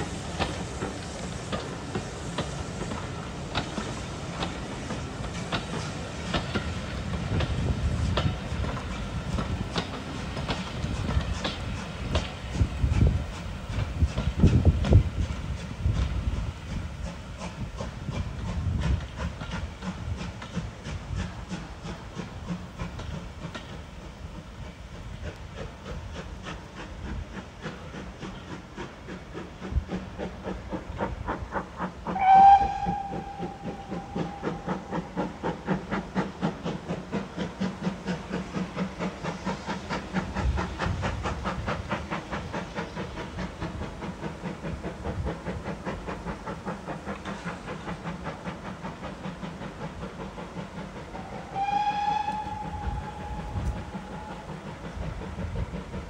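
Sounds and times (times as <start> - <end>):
steam locomotive chuffing: 0.0 - 56.0
steam whistle blast: 32.1 - 34.9, 51.1 - 54.5.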